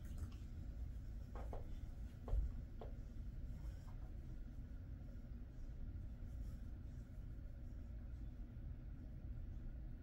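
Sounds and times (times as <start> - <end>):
low room rumble: 0.0 - 10.0
hand rubbing dog fur: 1.0 - 8.2.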